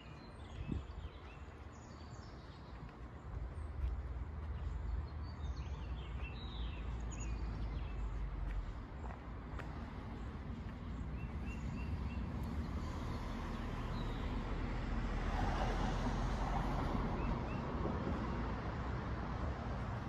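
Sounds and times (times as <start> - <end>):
car passing: 6.6 - 20.0.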